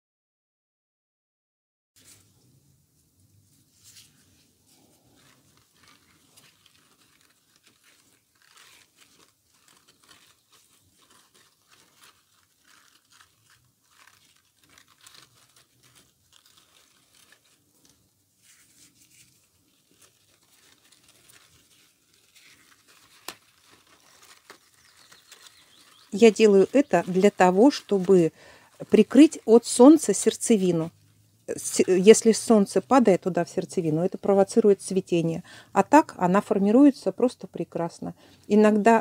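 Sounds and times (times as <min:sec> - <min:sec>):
cabbage leaves rustling and crunching: 0:03.8 - 0:30.9.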